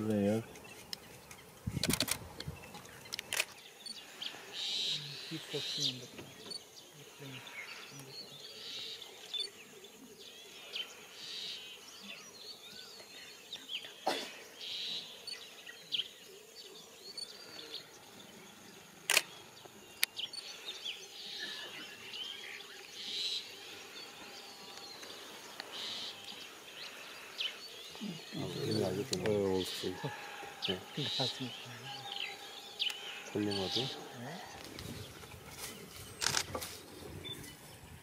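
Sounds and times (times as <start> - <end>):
small birds chirping: 0.0 - 38.0
sharp clicks: 19.1 - 19.3.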